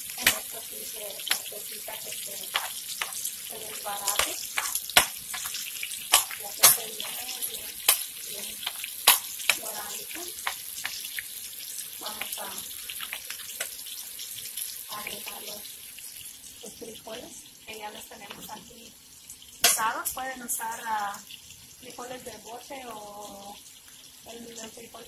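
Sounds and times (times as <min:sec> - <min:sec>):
meat sizzling in oil: 0:00.0 - 0:25.0
metal spoon clicking on pan: 0:01.2 - 0:01.5, 0:03.8 - 0:05.5.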